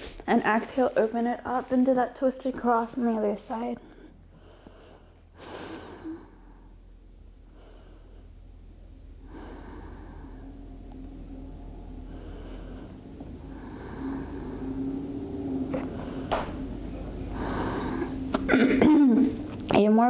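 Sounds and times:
low steady hum: 0.0s - 20.0s
woman breathing deeply: 3.8s - 18.5s.

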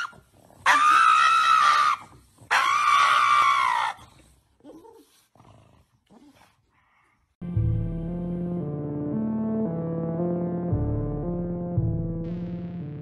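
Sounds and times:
dog screaming: 0.0s - 4.1s.

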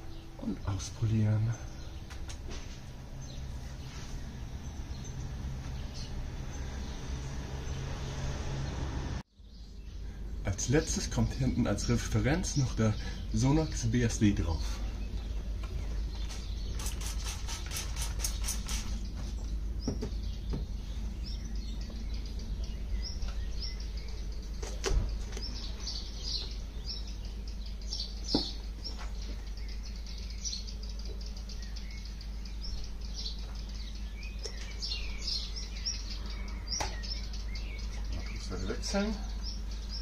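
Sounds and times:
small birds chirping: 0.0s - 40.0s
steady low rumble: 9.6s - 17.2s, 18.2s - 40.0s
trigger spray bottle spraying: 16.3s - 19.0s.

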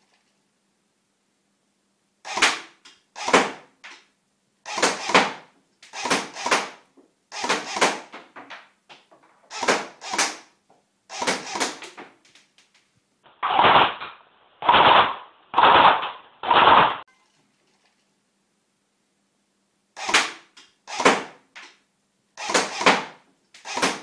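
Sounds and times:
airsoft rifle shots: 2.3s - 3.6s, 13.4s - 17.0s, 20.0s - 21.4s.

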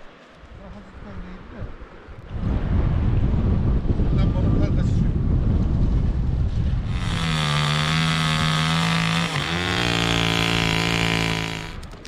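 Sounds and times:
engine running: 6.9s - 11.9s.

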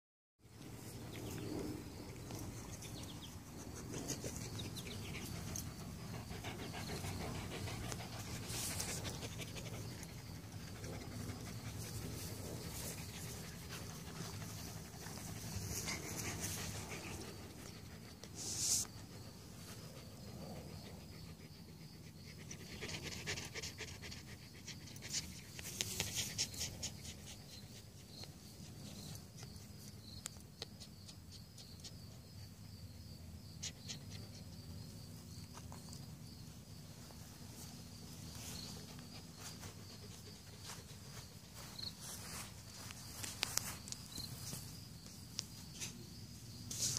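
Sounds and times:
steady low hum: 0.5s - 22.1s
dog panting: 2.3s - 18.4s, 19.0s - 28.8s.

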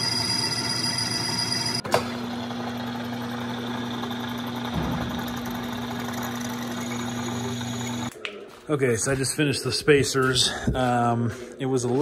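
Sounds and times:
electric motor humming: 2.1s - 8.1s.

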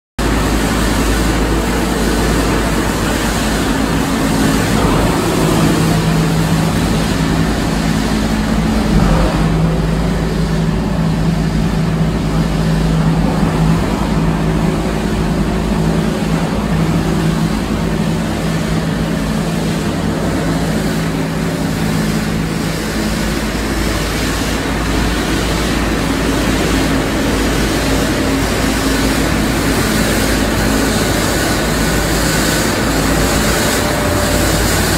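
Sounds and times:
low hum: 0.2s - 23.4s
machine drone of motors and conveyors: 0.2s - 34.9s.

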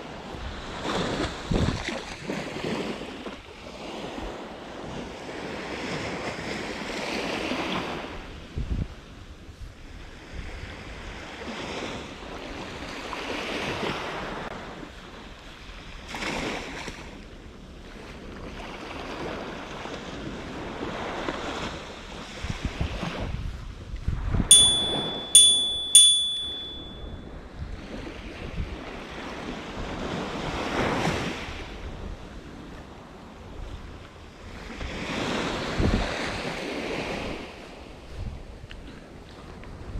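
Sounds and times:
wind noise on microphone: 0.0s - 14.9s, 20.1s - 39.9s
small waves breaking on shore: 0.0s - 24.3s, 27.9s - 39.9s
sharp clicks with ringing tone: 24.5s - 27.1s.

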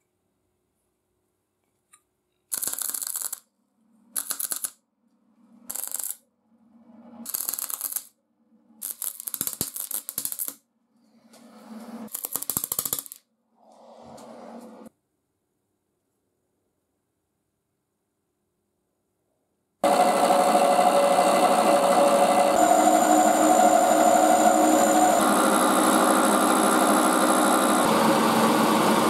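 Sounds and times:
welding arc crackling: 2.5s - 3.4s, 8.8s - 10.6s
low hum: 19.8s - 29.0s.

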